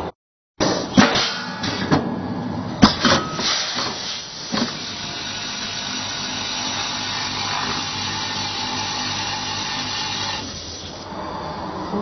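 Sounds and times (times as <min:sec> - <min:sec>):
packaging machine running: 0:03.7 - 0:11.0.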